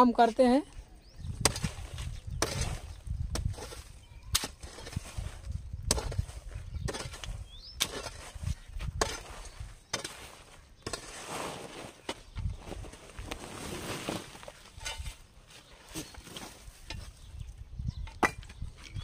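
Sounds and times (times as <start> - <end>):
digging tool chopping earth: 1.3 - 11.3.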